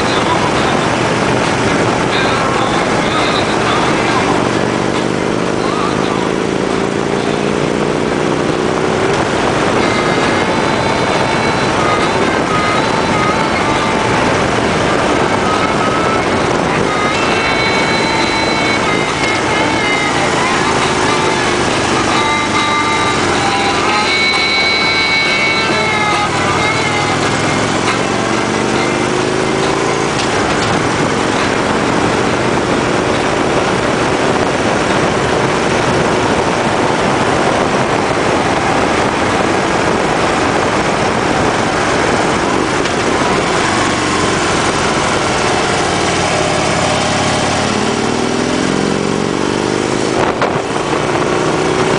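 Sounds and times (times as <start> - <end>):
motorcycle engine running: 0.0 - 51.9
wind noise: 0.0 - 51.9.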